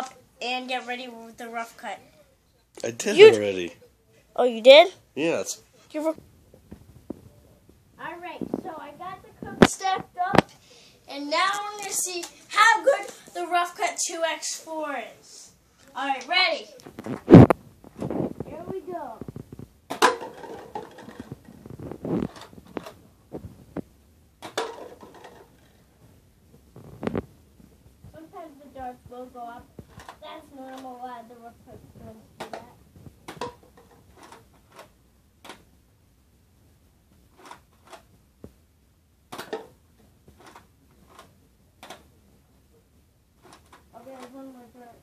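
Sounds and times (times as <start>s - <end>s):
plastic cups clattering: 19.2s - 23.0s, 24.4s - 25.8s, 32.4s - 35.6s, 39.3s - 42.1s, 43.4s - 44.4s.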